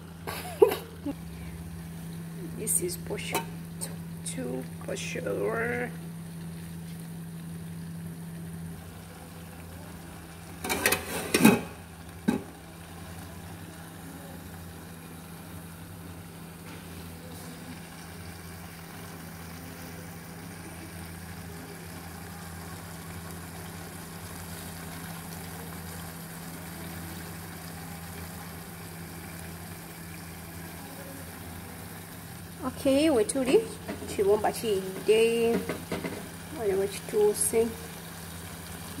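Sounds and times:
steady low hum: 0.0s - 24.4s.

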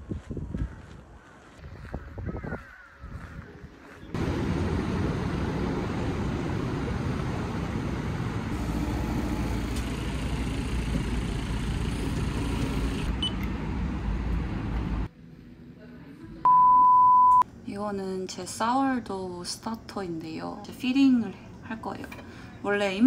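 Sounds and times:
vehicle interior hum: 4.2s - 15.1s.

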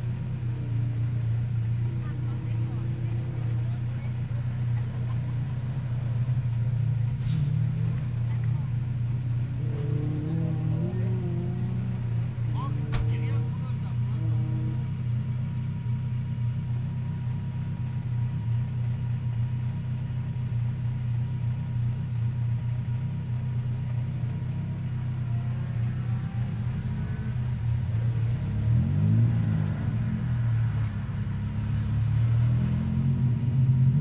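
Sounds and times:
rally car engines rumbling: 0.0s - 34.0s
engine revving: 6.1s - 15.8s, 25.3s - 34.0s.

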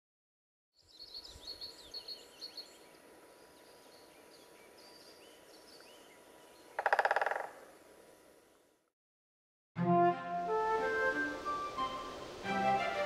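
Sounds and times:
birds chirping: 0.8s - 7.8s.

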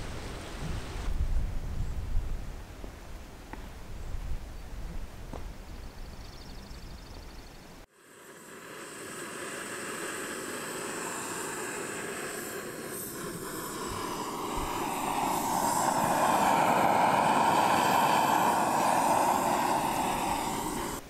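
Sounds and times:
gas stove burner rushing: 8.5s - 21.0s.

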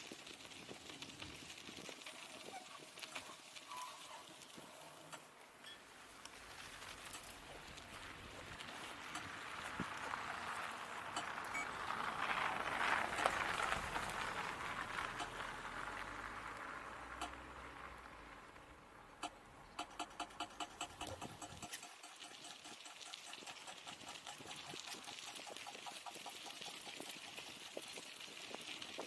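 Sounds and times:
bicycle tyres crunching on snow: 0.0s - 29.0s
sharp regular ticking: 8.6s - 16.4s, 19.1s - 28.1s.

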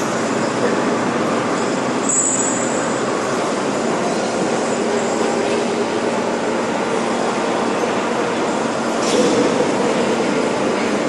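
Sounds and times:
forge machinery noise: 0.0s - 11.0s
high squeal: 2.0s - 2.8s.

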